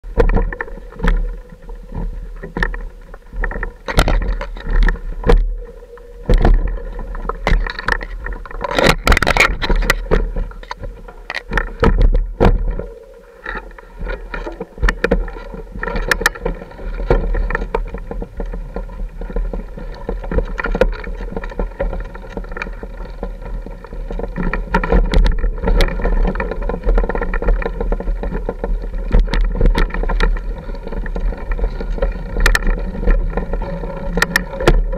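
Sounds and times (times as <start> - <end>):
bike knocks and rattles over rocks: 0.0 - 34.9
wind noise: 0.0 - 34.9.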